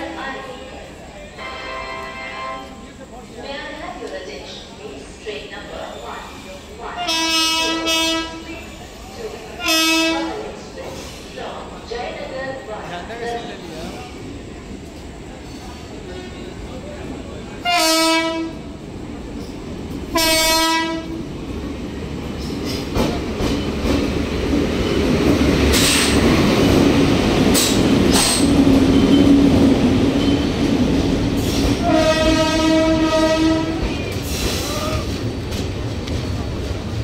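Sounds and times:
train rumbling past: 0:00.0 - 0:37.0
train horn blasts: 0:01.4 - 0:02.8, 0:07.0 - 0:08.5, 0:09.6 - 0:10.3, 0:17.6 - 0:18.6, 0:20.1 - 0:21.2, 0:31.8 - 0:33.9.

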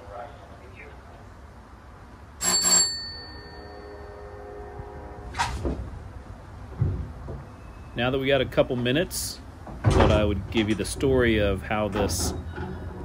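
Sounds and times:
signal bell ringing: 0:02.4 - 0:04.4
cable car low rumble: 0:03.4 - 0:13.0
cable car clunk: 0:06.7 - 0:13.0.

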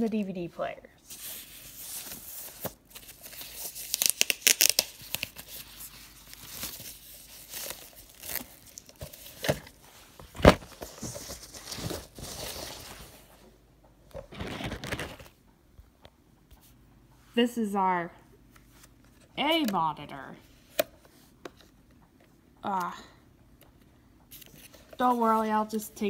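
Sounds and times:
plastic packaging crinkling: 0:01.7 - 0:13.3, 0:14.2 - 0:15.4.

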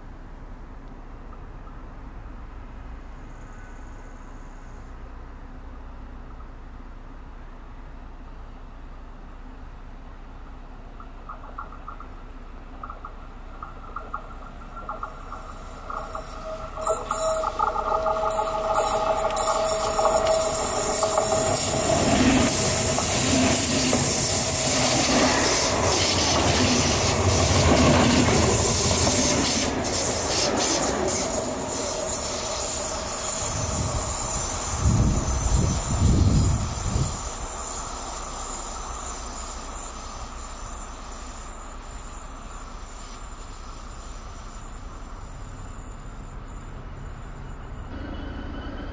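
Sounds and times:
wheel and rail rush: 0:00.0 - 0:48.9
wheels clicking over rail joints: 0:10.8 - 0:40.8
electric train whining: 0:13.6 - 0:48.9.

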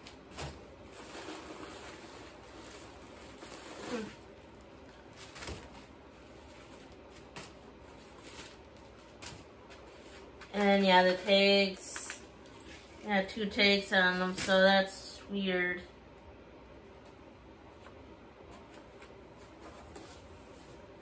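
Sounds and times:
paper rustling and crinkling: 0:00.0 - 0:13.0.

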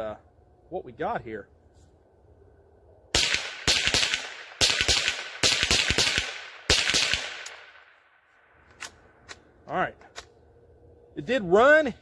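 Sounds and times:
rifle shots: 0:03.1 - 0:08.0
gunshot echo: 0:03.2 - 0:08.0.

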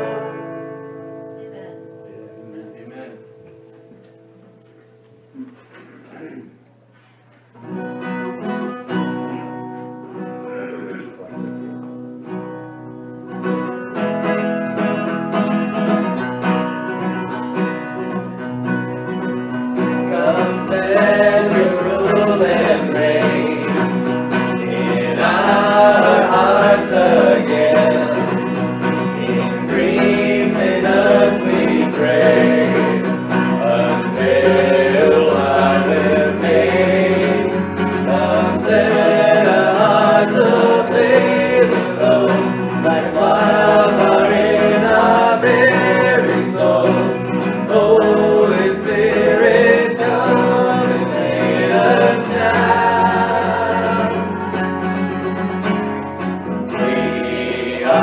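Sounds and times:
acoustic guitar: 0:00.0 - 0:58.0
people singing: 0:19.8 - 0:55.8, 0:56.4 - 0:58.0.

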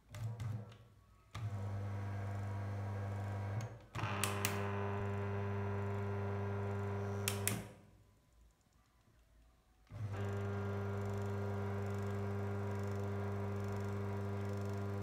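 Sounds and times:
washing machine motor humming: 0:04.1 - 0:07.5, 0:10.0 - 0:15.0
switch clicks: 0:07.2 - 0:07.7.

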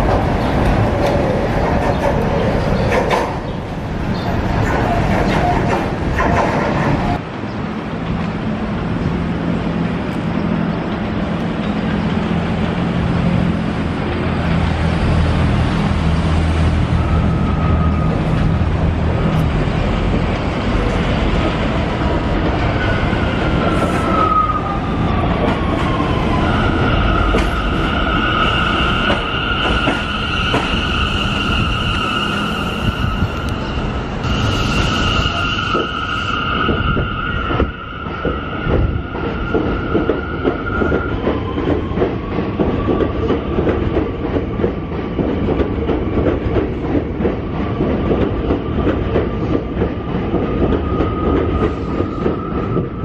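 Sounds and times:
subway train braking: 0:00.0 - 0:53.0
high-pitched wheel squeal: 0:26.4 - 0:33.7.

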